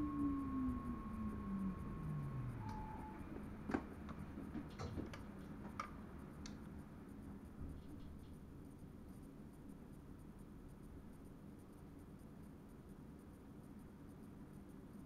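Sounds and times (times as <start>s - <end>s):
electric train cab rumble: 0.0s - 6.2s.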